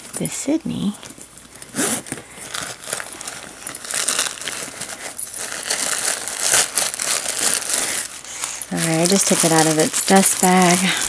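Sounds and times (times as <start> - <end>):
packing stuffing crumpling: 0.1 - 11.0.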